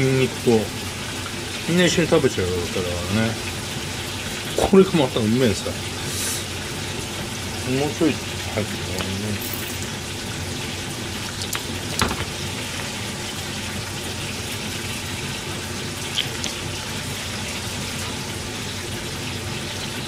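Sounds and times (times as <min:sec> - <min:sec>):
kitchen hiss: 0:05.6 - 0:06.6.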